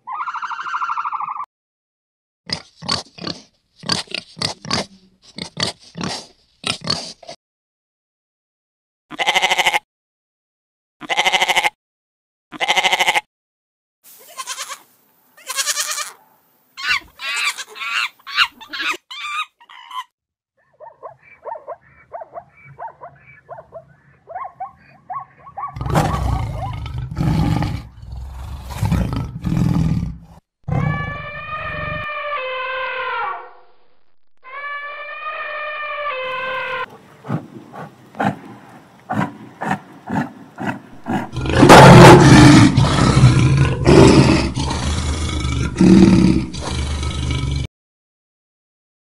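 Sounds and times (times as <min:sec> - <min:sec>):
long sliding animal call: 0:00.1 - 0:01.4, 0:30.7 - 0:33.6, 0:34.4 - 0:37.1
goat bleating: 0:09.1 - 0:09.8, 0:11.0 - 0:11.8, 0:12.5 - 0:13.3, 0:14.2 - 0:16.2, 0:16.8 - 0:20.0
loud deep animal calls: 0:34.4 - 0:47.7
rapid animal chatter: 0:39.1 - 0:44.0.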